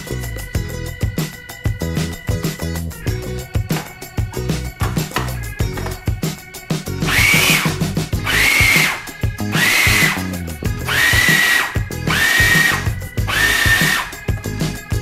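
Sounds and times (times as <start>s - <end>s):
food processor pulsing: 7.1s - 7.7s, 8.3s - 10.3s, 10.9s - 14.1s.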